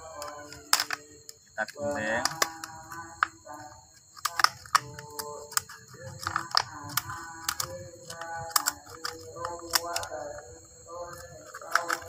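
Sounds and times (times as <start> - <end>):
steady high-pitched hum: 0.0 - 12.0
scissors snipping plastic cup: 4.2 - 10.4, 11.4 - 12.0.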